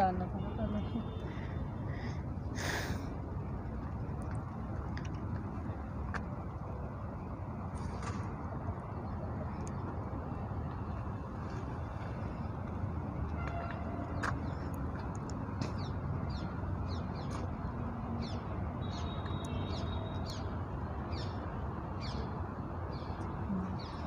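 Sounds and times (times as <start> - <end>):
birds chirping: 13.6 - 24.0.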